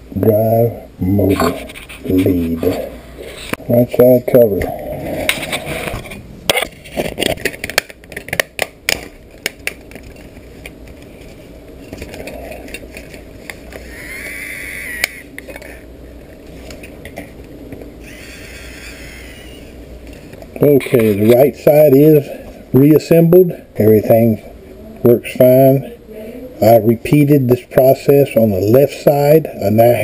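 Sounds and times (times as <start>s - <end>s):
short whine: 13.8s - 15.4s.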